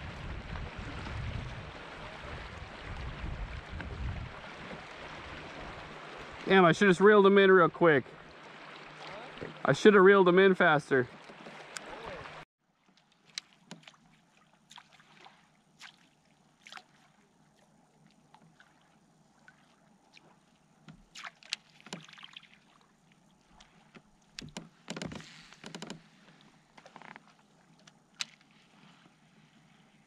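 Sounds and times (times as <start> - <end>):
water lapping against boat hull: 0.0 - 30.0
clicks and knocks on boat: 11.1 - 12.0, 12.9 - 14.0, 20.8 - 22.2, 23.6 - 28.5.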